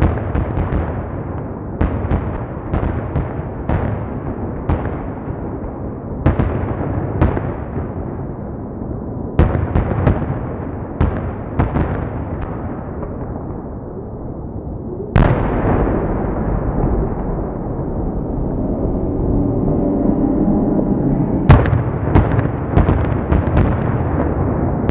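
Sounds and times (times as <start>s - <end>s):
fireworks bangs with rumbling echo: 0.0s - 8.4s, 9.3s - 13.9s, 15.1s - 18.0s, 21.5s - 24.9s.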